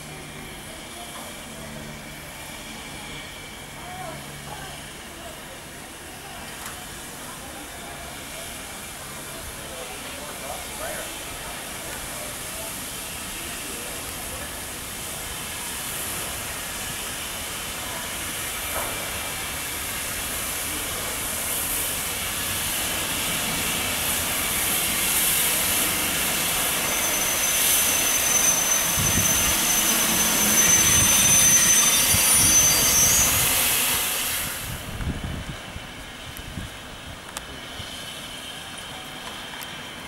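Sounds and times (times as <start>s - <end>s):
steam hissing from locomotive: 0.0s - 40.0s
high-pitched squeal: 24.5s - 34.8s.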